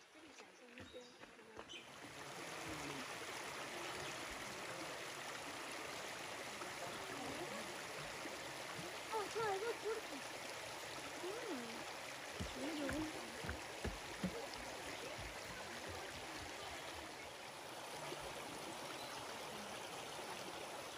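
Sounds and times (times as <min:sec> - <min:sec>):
creek water rippling over stones: 0:00.0 - 0:20.9.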